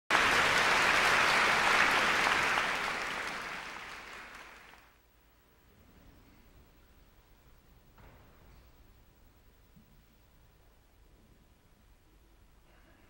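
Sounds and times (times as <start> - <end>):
audience applause: 0.1 - 5.0.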